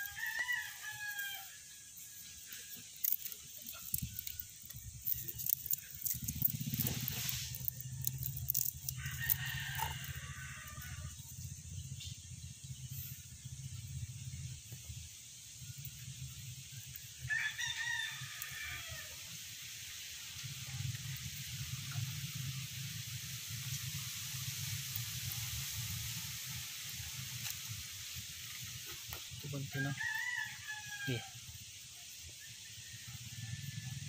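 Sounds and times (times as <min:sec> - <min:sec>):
rooster crowing: 0:00.0 - 0:02.0, 0:07.4 - 0:11.3, 0:17.2 - 0:19.3, 0:29.6 - 0:31.5, 0:32.6 - 0:34.0
steady low hum: 0:00.0 - 0:29.7.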